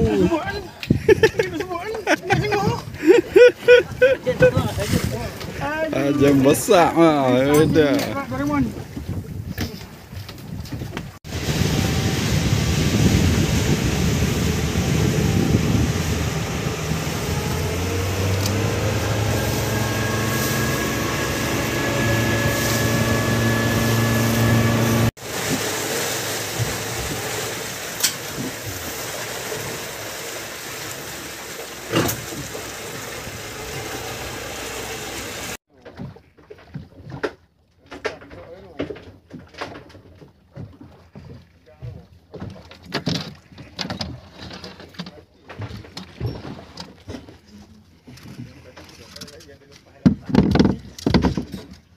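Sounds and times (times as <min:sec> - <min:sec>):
rushing water and wind: 0:00.0 - 0:35.6
boat engine running: 0:11.0 - 0:37.1.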